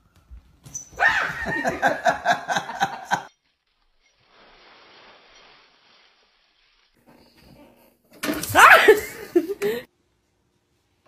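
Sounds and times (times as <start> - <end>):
person laughing: 1.2 - 3.3, 8.7 - 9.9
dry leaves rustling: 3.6 - 7.0.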